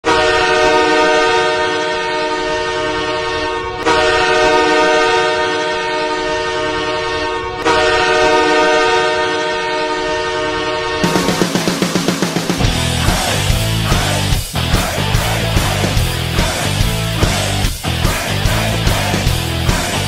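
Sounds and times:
goal horn blasts: 0.0 - 11.8.

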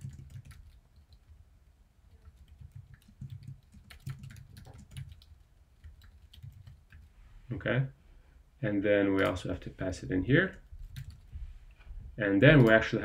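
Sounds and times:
keyboard typing: 0.0 - 1.4, 2.1 - 7.1, 10.9 - 11.3.

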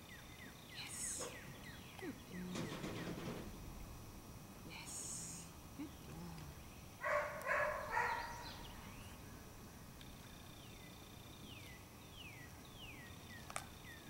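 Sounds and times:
dog barking: 7.0 - 8.7.

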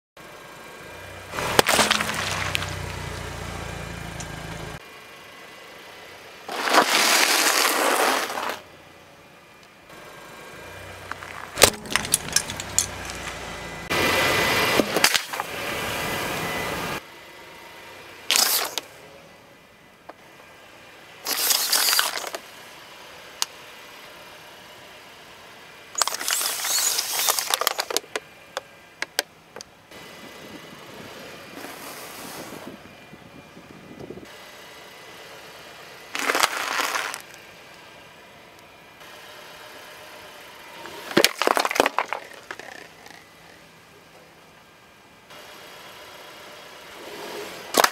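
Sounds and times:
car tyre crushing objects: 1.3 - 4.7, 6.5 - 8.7, 11.0 - 13.8, 14.7 - 15.6, 18.3 - 18.9, 21.3 - 22.5, 26.0 - 29.3, 36.1 - 37.4, 40.8 - 43.6, 47.6 - 47.9.

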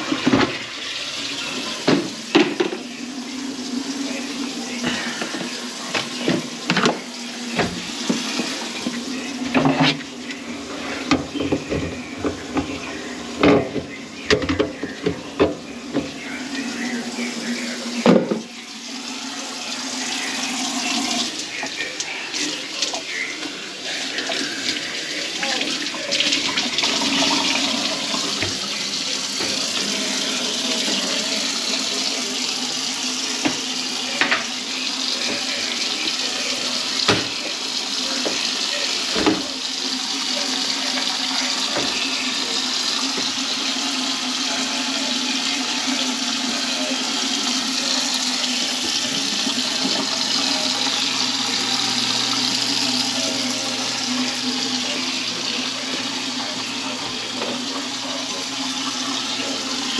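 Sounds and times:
tap water running into sink: 0.0 - 59.9.

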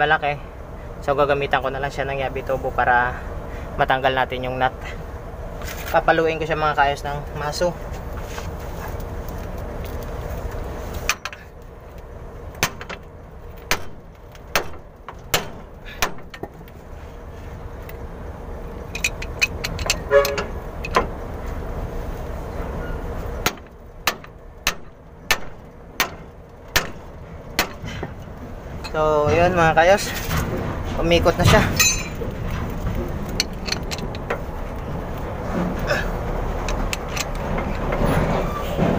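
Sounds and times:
sledgehammer clanging on metal: 19.0 - 21.1, 31.3 - 32.7.

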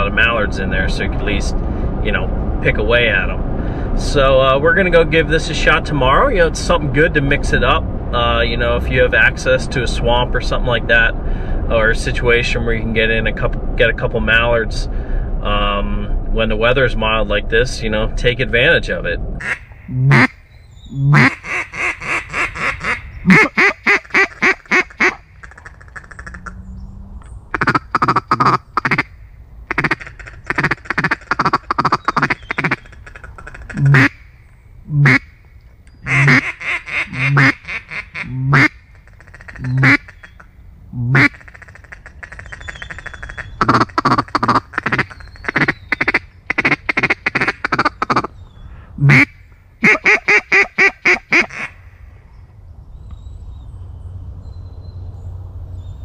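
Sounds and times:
duck quacking: 19.4 - 20.4, 21.0 - 26.6, 27.5 - 29.1, 29.7 - 34.2, 34.9 - 35.3, 36.0 - 40.2, 41.0 - 48.3, 49.0 - 51.8.

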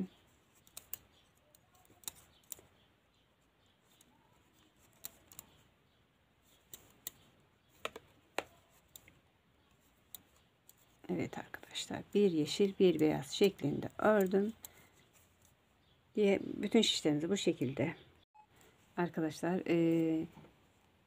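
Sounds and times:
knitting needles clicking: 0.0 - 16.0.

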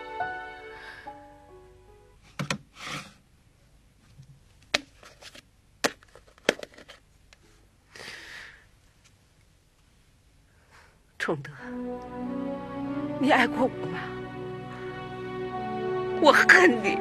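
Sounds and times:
soft music: 0.0 - 2.2, 11.2 - 17.0.

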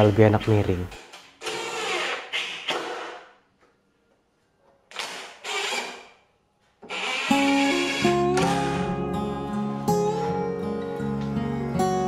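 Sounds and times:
cordless drill driving screws: 1.4 - 3.2, 4.9 - 6.2, 6.8 - 8.8
guitar music: 7.3 - 12.0.

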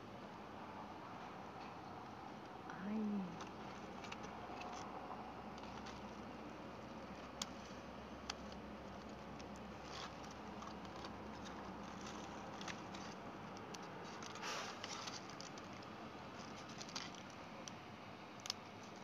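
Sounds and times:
crab shell cracking: 8.2 - 19.0
foil and plastic crinkling: 8.4 - 15.8, 16.4 - 17.4.

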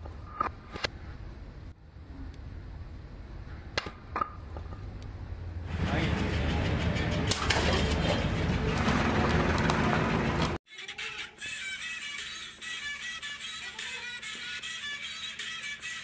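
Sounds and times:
noisy background: 1.4 - 10.6.

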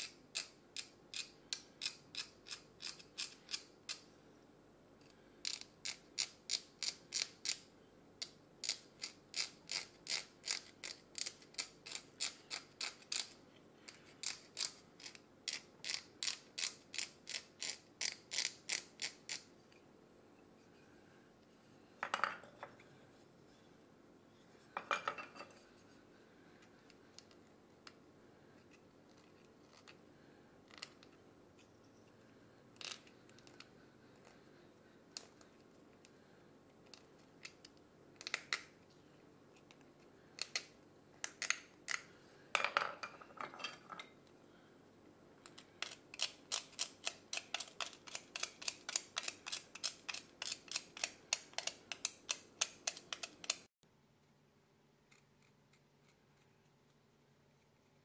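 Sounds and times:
blade carving a nut: 0.0 - 4.1, 5.4 - 19.5, 45.5 - 53.7.

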